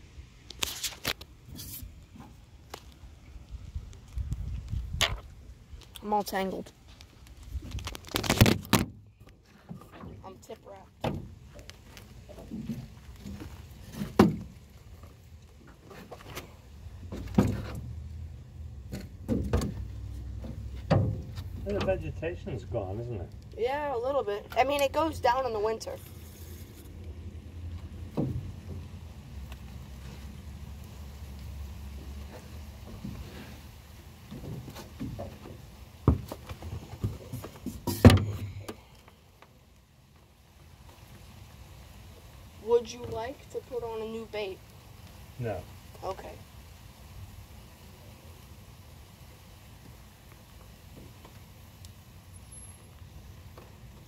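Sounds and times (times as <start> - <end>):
irregular knocks and thumps: 18.8 - 21.9, 34.4 - 38.6.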